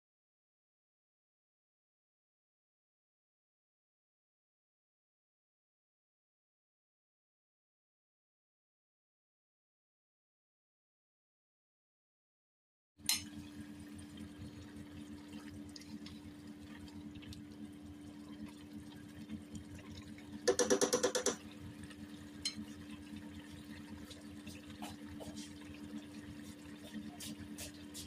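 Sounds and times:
sauce bubbling in a pan: 13.1 - 28.0.

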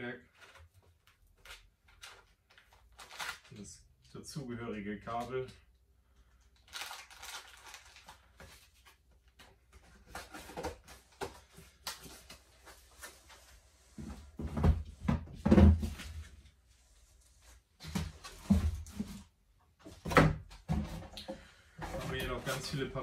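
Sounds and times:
packaging rustles: 0.3 - 3.7, 6.4 - 13.5.

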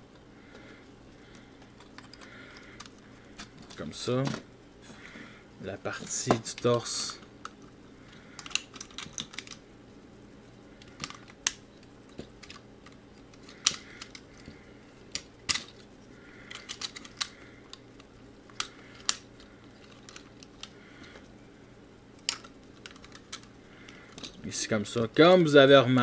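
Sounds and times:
plastic parts clicking and knocking: 1.3 - 4.5, 6.0 - 9.6, 10.8 - 21.3, 22.2 - 24.4.

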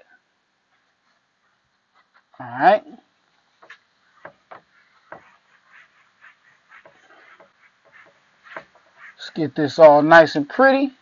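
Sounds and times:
wiping marker off a whiteboard: 3.6 - 9.2.

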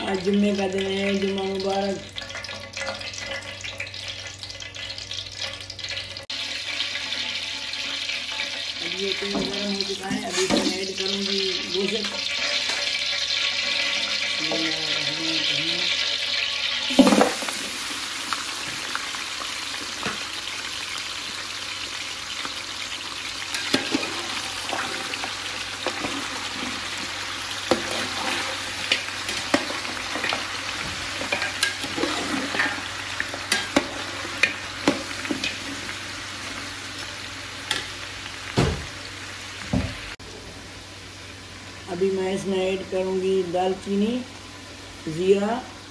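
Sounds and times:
meat sizzling in hot oil: 0.0 - 45.9
metal spoon scraping a pot: 12.1 - 14.6.

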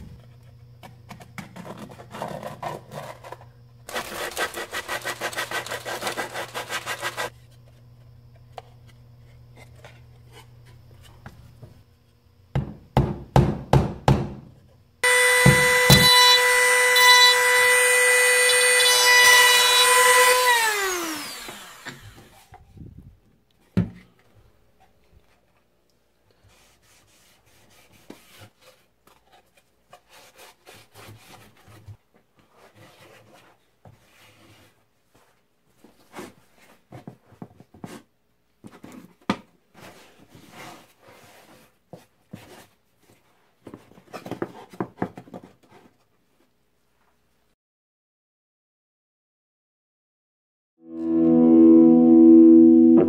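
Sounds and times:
scratchy rubbing: 3.9 - 7.3
rotary tool high whine: 15.0 - 22.6.

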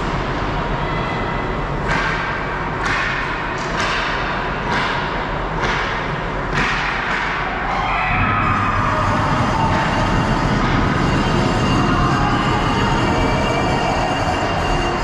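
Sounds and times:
hockey stick and puck hits: 1.8 - 7.8.

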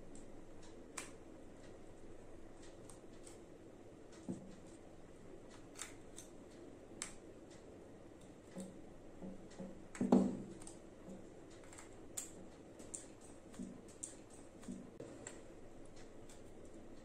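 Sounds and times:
plastic bulbs clicking and knocking: 8.2 - 16.4.

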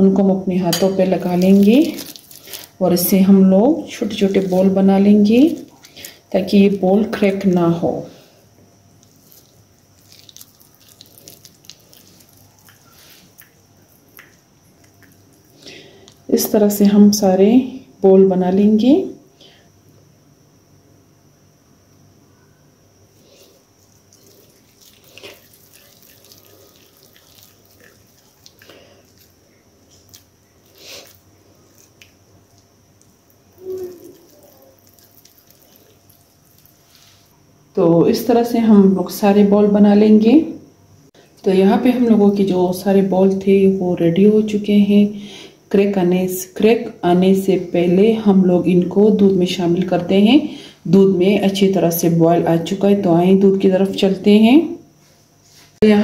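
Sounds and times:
sticky dough squelches: 1.0 - 8.3, 8.9 - 16.3, 23.2 - 37.4.

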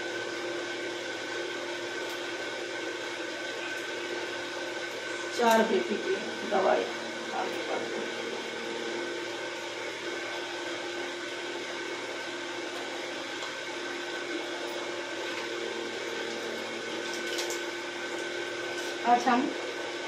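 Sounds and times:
motor humming with steady whir: 0.0 - 20.0.

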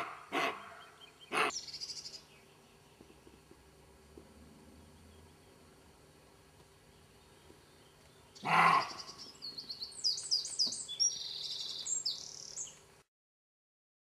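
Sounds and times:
deer barking: 0.0 - 1.6, 8.4 - 9.2
small bird chirping: 0.6 - 3.6, 6.8 - 12.9.

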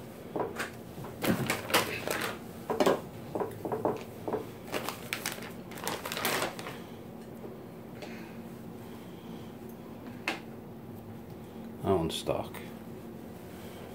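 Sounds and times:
plastic bag crinkling: 1.1 - 2.4, 3.9 - 6.9.

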